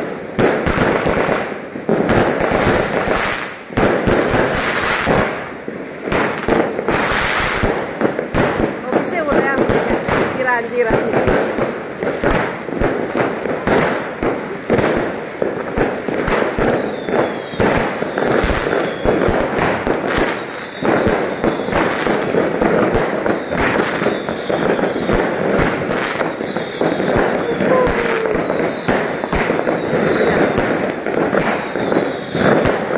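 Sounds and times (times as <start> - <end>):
fireworks bangs and crackles: 0.0 - 32.9
falling firework whistles: 14.9 - 32.9.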